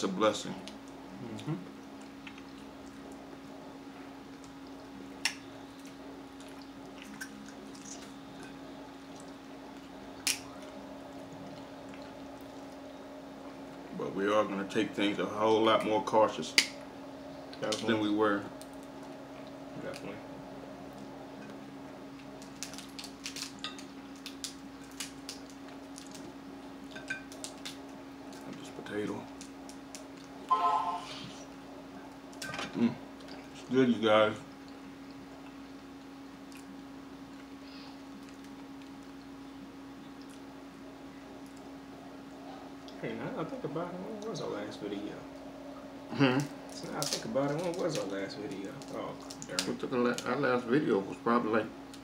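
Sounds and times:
steady low hum: 0.0s - 52.0s
wet chewing: 0.6s - 3.2s, 4.2s - 13.9s
shells cracking and crackling: 10.1s - 10.7s, 22.2s - 26.3s, 26.9s - 28.6s, 29.3s - 30.4s, 46.4s - 50.3s.

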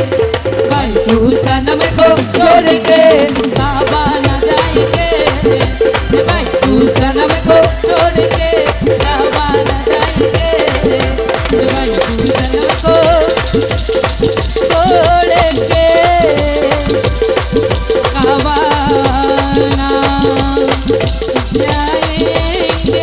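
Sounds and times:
dholak and tabla beat: 0.0s - 23.0s
harmonium melody: 10.7s - 23.0s.

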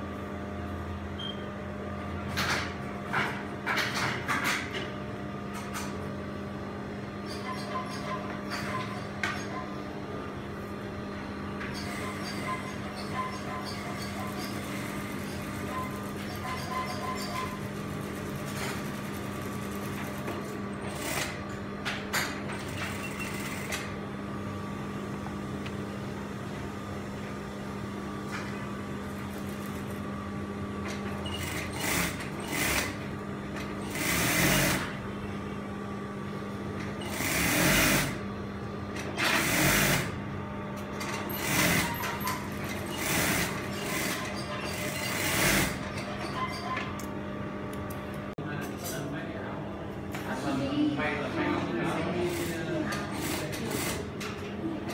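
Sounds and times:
sewing machine motor hum: 11.8s - 21.6s, 22.4s - 24.0s, 28.7s - 30.2s, 30.9s - 35.0s, 36.8s - 38.3s, 39.0s - 40.2s, 41.0s - 46.0s
sewing machine stitching bursts: 31.2s - 33.0s, 33.9s - 34.9s, 37.0s - 38.2s, 39.2s - 40.2s, 41.3s - 45.8s.

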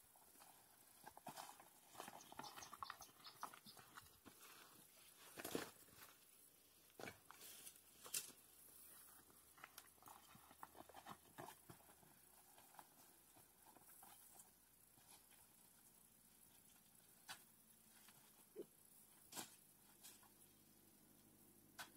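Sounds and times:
twigs and leaves crackling: 0.3s - 15.4s.

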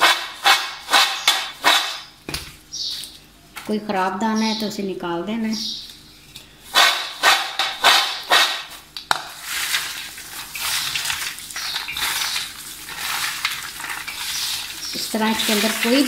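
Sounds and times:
garlic skins rustling: 8.7s - 16.0s.

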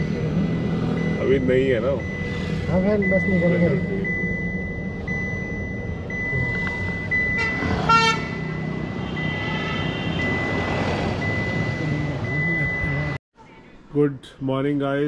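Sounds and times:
car running with road noise: 0.0s - 13.2s
high electronic beeps: 0.0s - 13.2s
vehicle horn honking: 7.4s - 10.4s.

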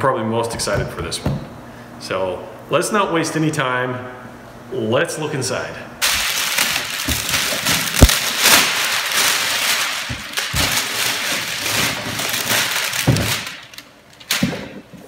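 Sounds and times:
cardboard packaging rustling: 6.0s - 15.0s.

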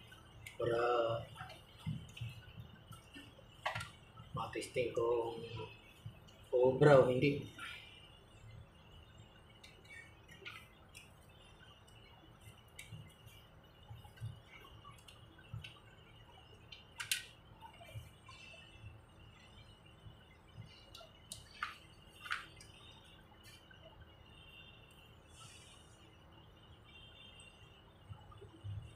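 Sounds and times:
clicks of wire connectors: 17.0s - 17.3s.

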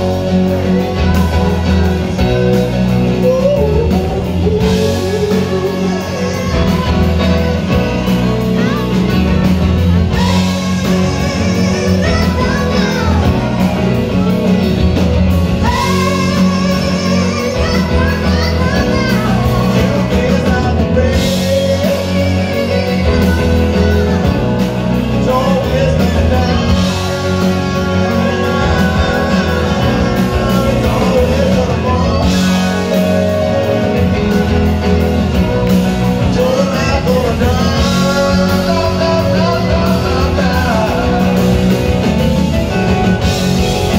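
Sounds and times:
drums: 0.0s - 43.9s
electric guitars: 0.0s - 43.9s
keyboards: 0.0s - 43.9s
person singing: 0.0s - 43.9s.

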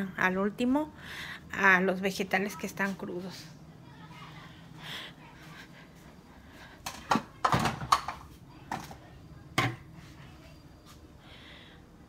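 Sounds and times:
kitchen knocks and clatters: 6.8s - 10.1s.

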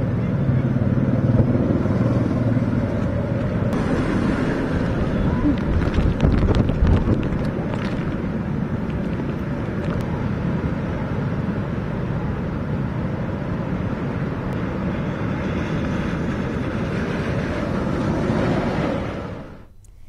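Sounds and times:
wind: 0.0s - 20.0s
heavy rain: 3.7s - 10.4s.

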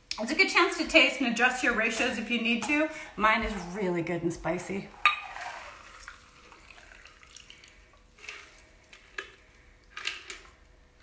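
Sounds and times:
liquid pouring into glass: 4.9s - 9.4s.

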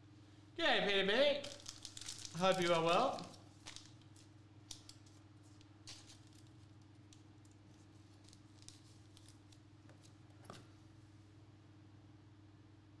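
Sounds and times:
low electrical hum: 0.0s - 13.0s
trading cards clicking and rustling: 1.4s - 10.6s.

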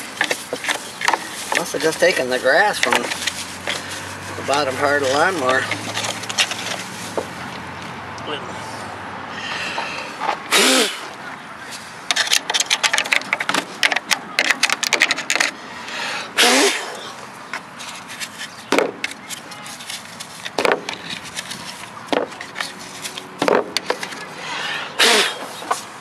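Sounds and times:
dry grass crackling and rustling: 0.0s - 8.0s, 17.7s - 24.3s
sharp knocks: 18.7s - 19.1s, 20.6s - 21.0s, 23.4s - 24.0s.

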